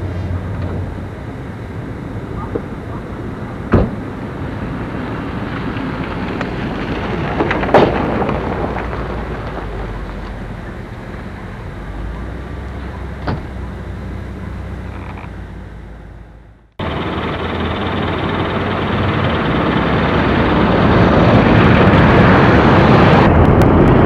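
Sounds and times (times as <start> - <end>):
sharp knocks: 3.7 - 4.0
wind buffeting microphone: 17.0 - 24.0.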